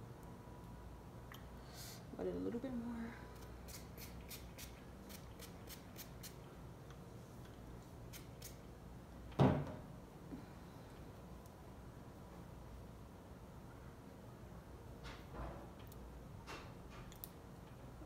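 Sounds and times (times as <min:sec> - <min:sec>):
spray bottle spraying water: 0:03.6 - 0:06.4, 0:08.1 - 0:08.6.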